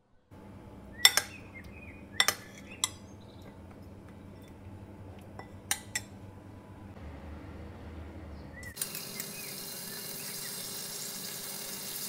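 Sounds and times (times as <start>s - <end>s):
spoon clinking ceramic bowl: 1.0s - 6.2s.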